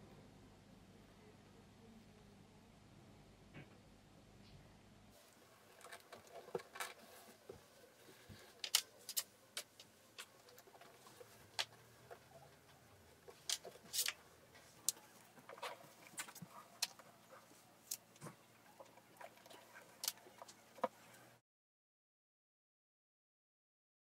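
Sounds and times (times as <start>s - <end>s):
faint steady hum: 0.0s - 21.4s
soft rustling: 5.2s - 21.4s.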